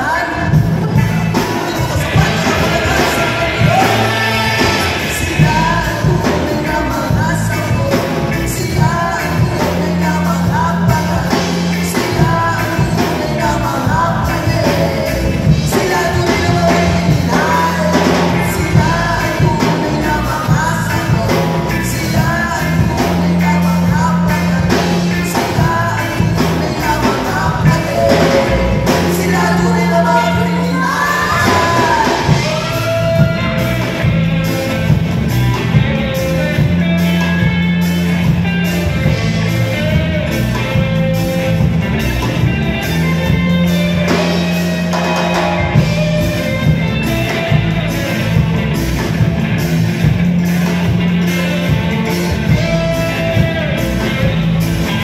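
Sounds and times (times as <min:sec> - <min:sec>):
lead vocal singing: 0:00.0 - 0:49.2, 0:50.0 - 0:55.0
bass guitar: 0:00.0 - 0:55.0
drum kit: 0:00.0 - 0:55.0
electric guitars: 0:00.0 - 0:55.0
keyboard: 0:00.0 - 0:55.0
saxophone and trumpet: 0:02.0 - 0:05.2.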